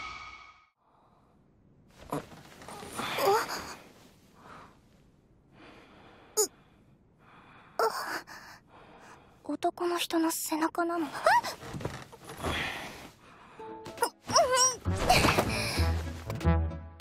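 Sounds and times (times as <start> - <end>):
woman gasping and sighing: 15.0 - 16.0.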